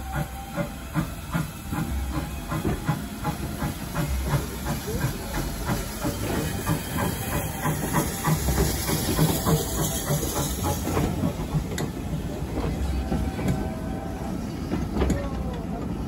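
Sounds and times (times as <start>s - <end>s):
steam locomotive hissing: 0.0s - 16.0s
wheels clicking over rail joints: 14.6s - 16.0s.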